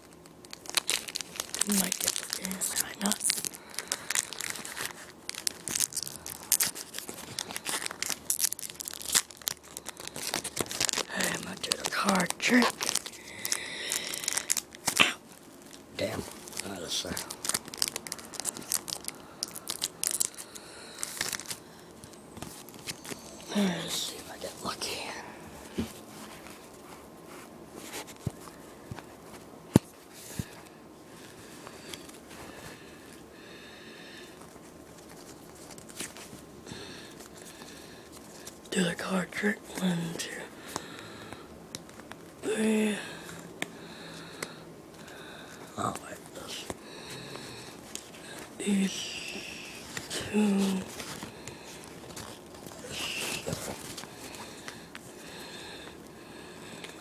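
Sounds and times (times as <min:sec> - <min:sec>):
wrapper crinkling and tearing: 0:00.0 - 0:24.8, 0:34.3 - 0:41.0, 0:41.7 - 0:42.4, 0:45.0 - 0:56.0
cards rustling: 0:00.0 - 0:32.8, 0:34.2 - 0:36.4, 0:44.3 - 0:56.0.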